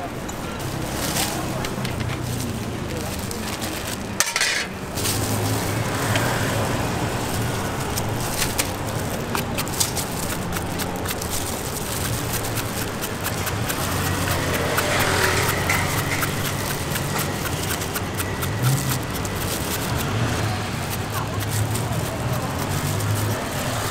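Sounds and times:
street traffic: 0.0 - 23.9
vehicle engine running: 4.9 - 23.9.

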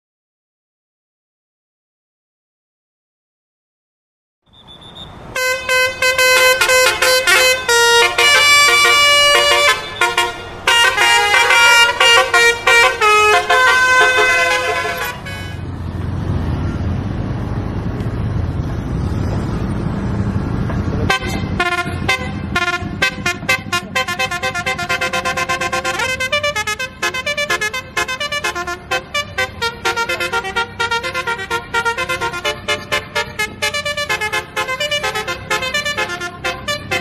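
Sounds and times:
road noise: 4.4 - 37.0
bus engine rumble: 4.5 - 37.0
multi-tone bus horn melody: 4.6 - 15.7, 21.0 - 37.0.

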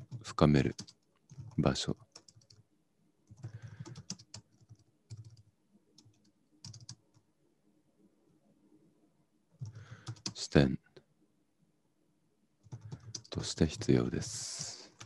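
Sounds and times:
computer keyboard typing: 0.0 - 2.6, 3.3 - 7.2, 9.6 - 10.4, 12.6 - 15.0.

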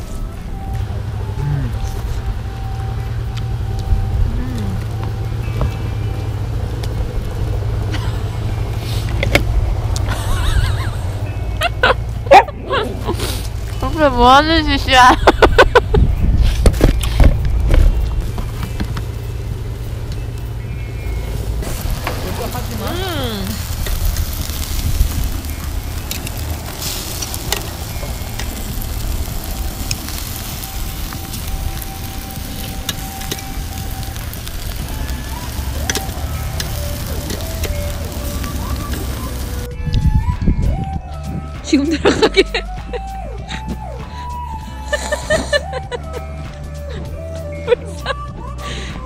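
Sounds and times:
wind rumbling on microphone: 0.0 - 41.8
fat popping and crackling: 1.8 - 10.9, 11.6 - 40.1
meat sizzling on a grill: 21.0 - 39.7.

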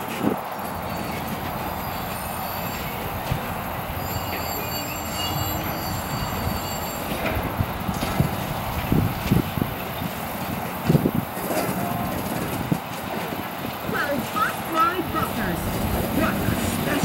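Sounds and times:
train wheels rumbling on rails: 0.0 - 17.0
high wheel squeals: 0.5 - 8.7
wheels knocking over rail joints: 7.0 - 17.0.

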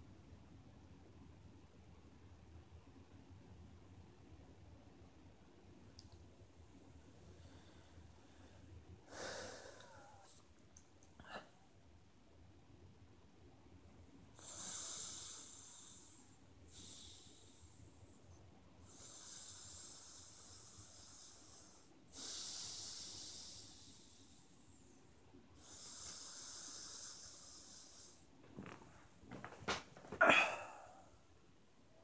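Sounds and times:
man breathing deeply: 7.4 - 10.4, 25.6 - 28.3, 30.1 - 31.2.

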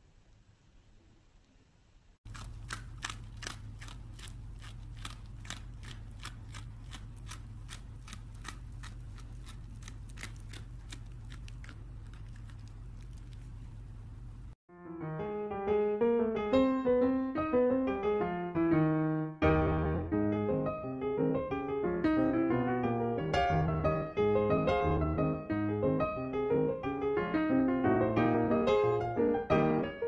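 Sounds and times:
steady low hum: 1.9 - 14.6
dog chewing: 2.3 - 14.5.

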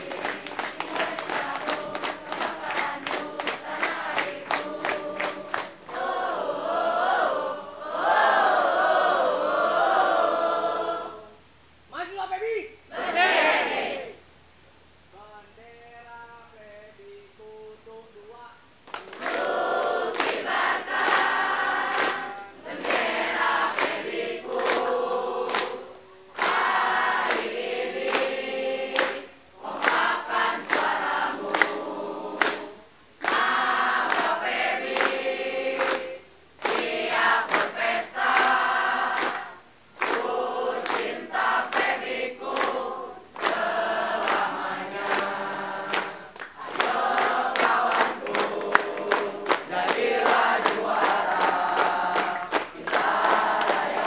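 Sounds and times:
hands clapping: 0.0 - 6.2, 18.8 - 54.0
group singing cheer song: 0.0 - 11.4, 12.9 - 14.3, 15.1 - 54.0.

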